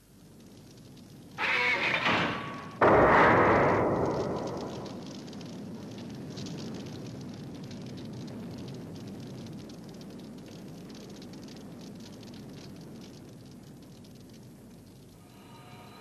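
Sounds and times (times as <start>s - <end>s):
fire crackling: 0.0s - 16.0s
low rumble: 1.6s - 6.7s.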